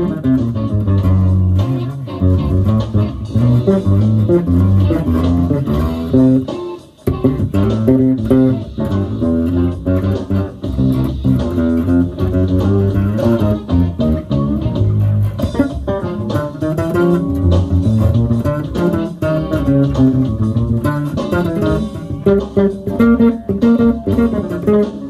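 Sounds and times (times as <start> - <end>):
bass guitar plucked funky line: 0.0 - 25.0.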